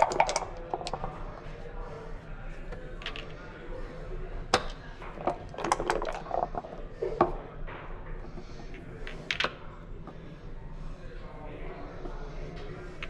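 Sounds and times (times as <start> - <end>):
dice clattering on board: 0.0 - 1.1, 9.1 - 9.6.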